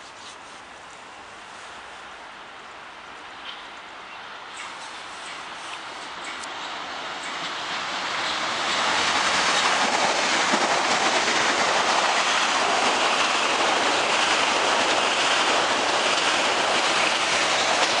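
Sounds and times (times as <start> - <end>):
train wheels rushing on rails: 4.4 - 18.0.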